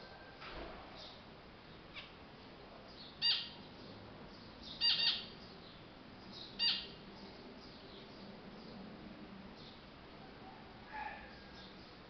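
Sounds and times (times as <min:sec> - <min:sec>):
finch short calls: 0:04.8 - 0:05.3, 0:06.6 - 0:06.9.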